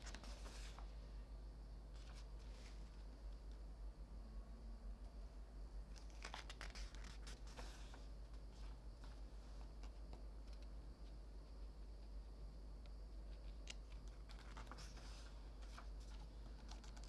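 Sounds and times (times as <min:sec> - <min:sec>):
paper pages turning: 0:00.0 - 0:00.9, 0:02.0 - 0:02.8, 0:05.9 - 0:10.7, 0:13.5 - 0:17.0
light touches on paper: 0:00.0 - 0:01.0
faint low hum: 0:00.0 - 0:17.0.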